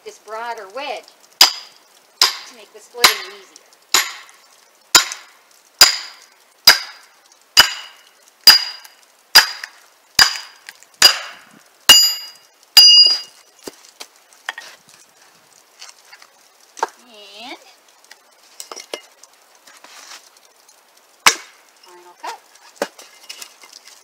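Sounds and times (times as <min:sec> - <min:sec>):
sledgehammer striking steel wedge: 0:01.4 - 0:03.3, 0:03.9 - 0:04.3, 0:05.0 - 0:07.0, 0:07.6 - 0:13.3, 0:21.2 - 0:21.5.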